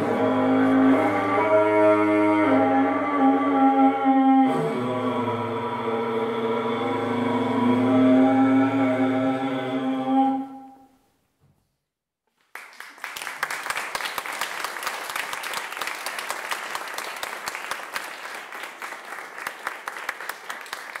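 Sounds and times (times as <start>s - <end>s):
audience applause: 12.5s - 21.0s.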